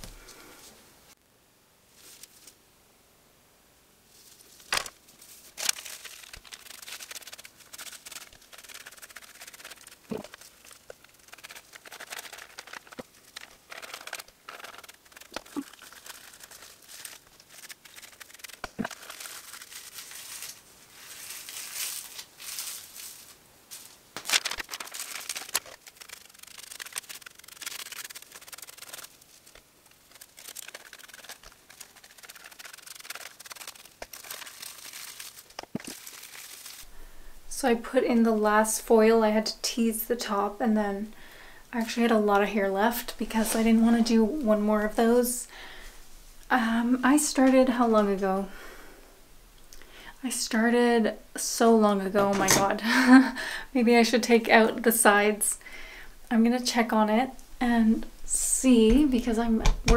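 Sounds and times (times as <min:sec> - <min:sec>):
hair rustling: 0:04.1 - 0:36.9, 0:41.8 - 0:48.4, 0:58.0 - 0:59.9
foil crinkling: 0:04.2 - 0:36.9, 0:41.8 - 0:45.8.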